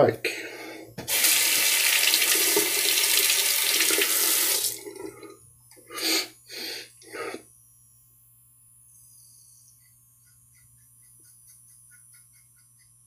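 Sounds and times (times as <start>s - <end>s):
tap water running into sink: 1.0s - 5.2s.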